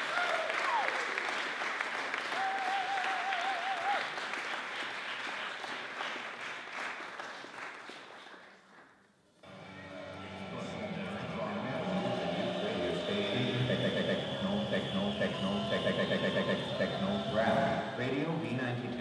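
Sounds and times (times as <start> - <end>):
audience applauding: 0.0 - 18.0
wavering high tone: 9.4 - 18.2.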